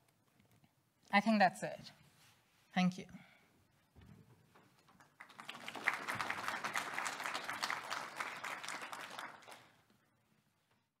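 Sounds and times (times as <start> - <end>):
audience applauding: 5.0 - 9.9.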